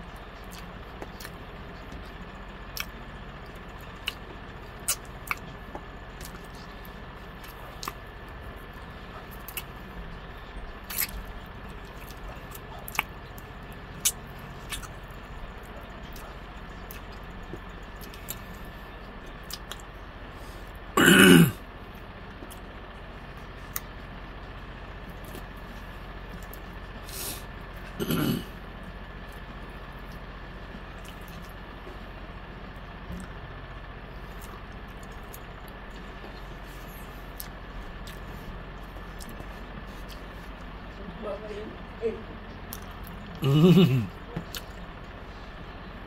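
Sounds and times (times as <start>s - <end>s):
steady background hum: 0.0s - 46.0s
chewing clicks: 0.4s - 8.0s, 9.3s - 9.8s, 10.8s - 18.6s, 19.2s - 19.9s, 37.3s - 40.7s, 42.7s - 43.4s, 44.4s - 44.9s
man's throat sound: 21.0s - 21.6s, 28.0s - 28.5s, 43.4s - 44.1s.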